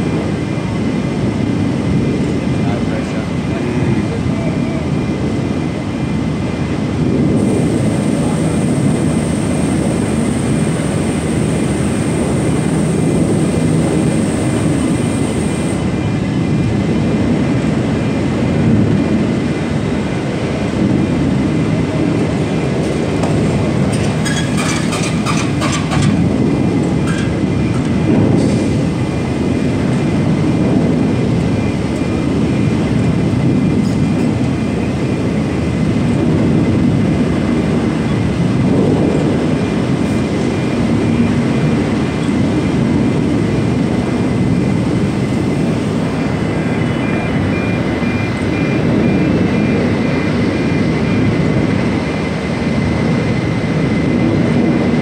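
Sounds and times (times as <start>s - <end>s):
crane mechanical rumble: 0.0s - 55.0s
intermittent beeping: 46.4s - 49.9s.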